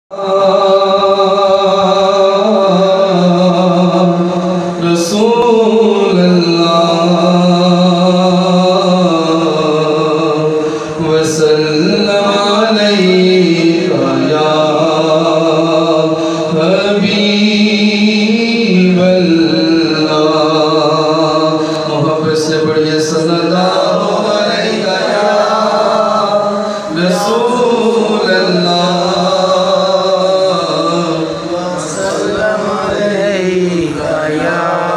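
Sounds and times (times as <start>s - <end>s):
man chanting into a microphone: 0.1s - 34.9s
short breath: 10.6s - 11.0s, 16.2s - 16.5s, 26.6s - 26.9s.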